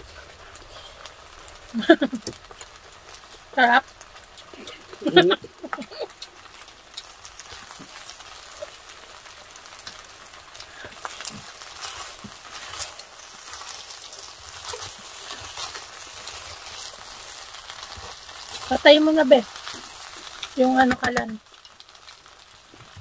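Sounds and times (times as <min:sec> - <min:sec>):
food sizzling and crackling in pot: 0:00.0 - 0:23.0
wooden spoons scraping a pot: 0:10.6 - 0:21.3.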